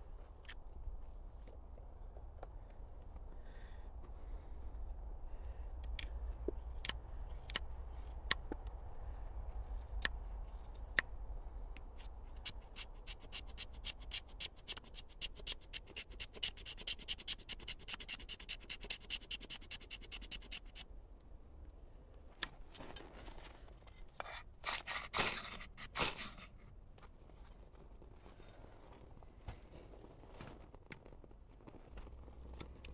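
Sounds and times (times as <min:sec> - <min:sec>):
knife shaving wood: 0:11.9 - 0:20.8, 0:24.1 - 0:26.6
knife scraping ferro rod: 0:12.0 - 0:20.8, 0:24.2 - 0:26.6.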